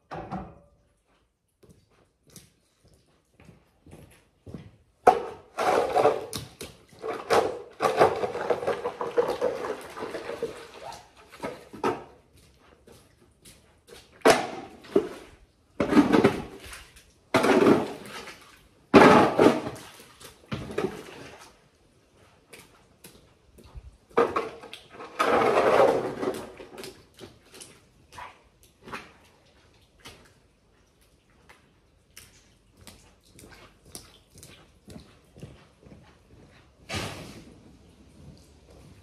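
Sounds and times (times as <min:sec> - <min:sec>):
shovel scraping wet muck: 0:05.2 - 0:12.2, 0:14.0 - 0:21.6, 0:24.2 - 0:29.4.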